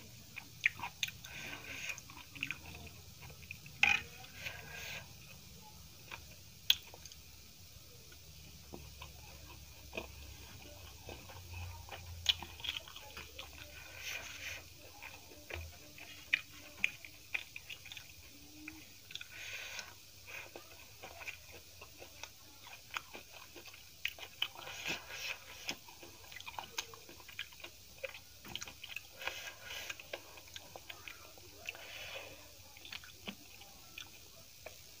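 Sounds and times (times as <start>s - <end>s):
chewing dumpling: 0.0s - 35.0s.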